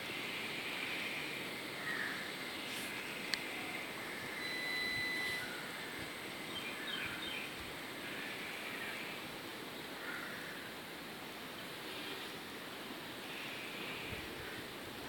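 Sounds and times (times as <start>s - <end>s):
outdoor background noise: 0.0s - 15.0s
faint chirps: 0.3s - 9.2s
thin whistle-like note: 4.4s - 5.8s.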